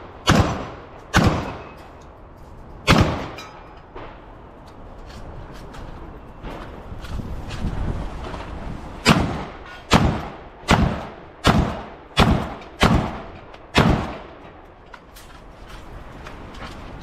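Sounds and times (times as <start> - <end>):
pistol shots with echo: 0.2 - 1.8, 2.8 - 3.4, 9.0 - 14.4.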